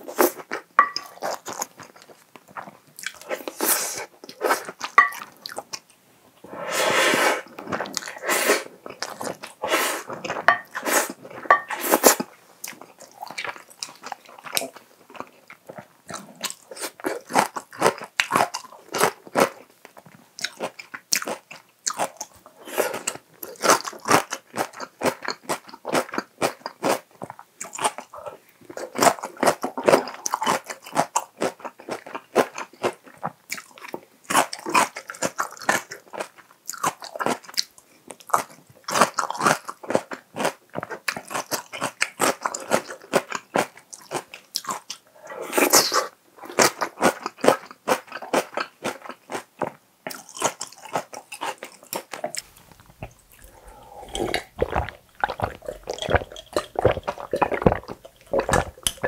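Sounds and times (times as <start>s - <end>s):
chewing crunches: 8.8s - 59.0s
wet mouth clicks: 52.0s - 59.0s
gulping water: 52.3s - 59.0s.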